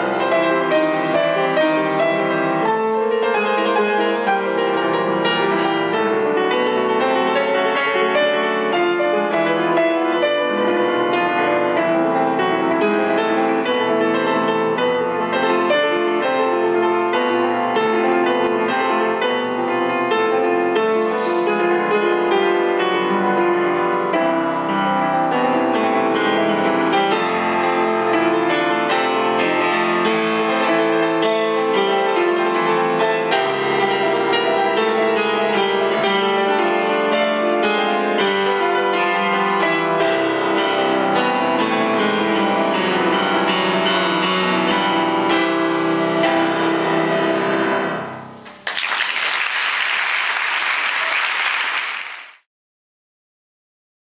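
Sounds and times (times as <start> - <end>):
solo classical piano: 0.0 - 48.6
audience applause: 48.4 - 52.4.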